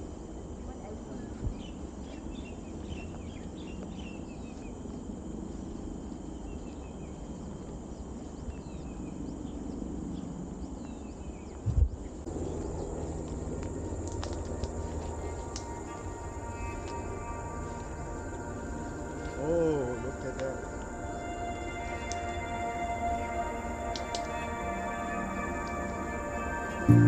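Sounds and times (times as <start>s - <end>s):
high insect drone: 0.0s - 27.0s
birds chirping: 0.6s - 27.0s
low rumble: 11.6s - 27.0s.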